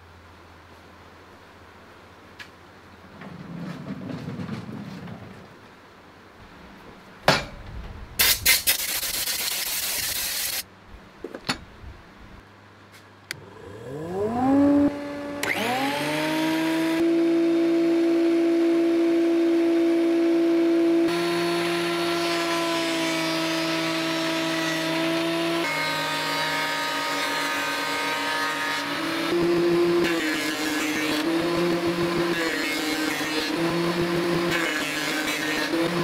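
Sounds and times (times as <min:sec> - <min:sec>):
planer cutting wooden board: 0:13.3 - 0:36.0
thickness planer motor whining: 0:13.3 - 0:36.0.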